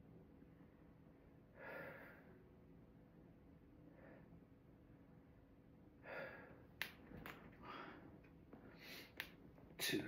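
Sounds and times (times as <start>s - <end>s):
man breathing hard: 1.5s - 2.4s, 6.0s - 6.7s, 7.6s - 9.2s.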